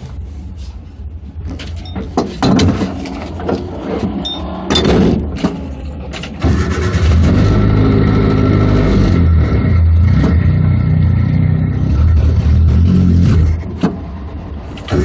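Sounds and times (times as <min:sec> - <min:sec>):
car engine revving: 0:03.6 - 0:15.0.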